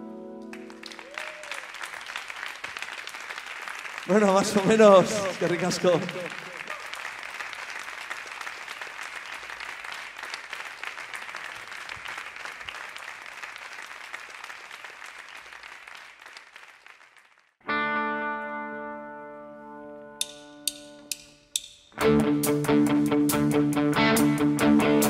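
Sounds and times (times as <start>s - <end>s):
audience applauding: 0.5s - 17.6s
electric guitar chord: 17.6s - 21.0s, 22.0s - 25.0s.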